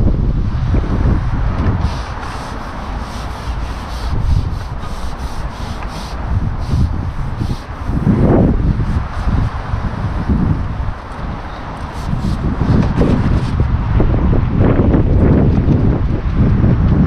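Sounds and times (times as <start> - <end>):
wind buffeting microphone: 0.0 - 17.0
short scratchy rasps: 1.8 - 8.1, 11.8 - 13.6.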